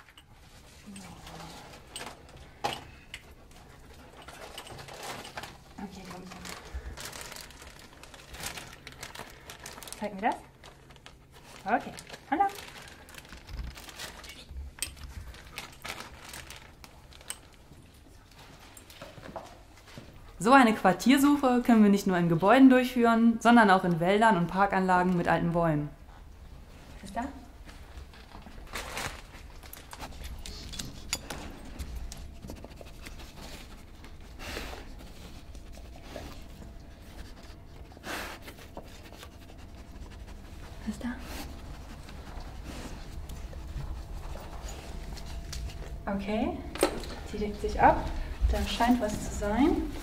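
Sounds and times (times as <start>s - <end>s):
rustling: 0.0s - 20.2s, 26.1s - 46.2s
harness and paws rubbing and tapping: 26.9s - 50.0s
dog sniffing and snorting: 29.4s - 46.0s.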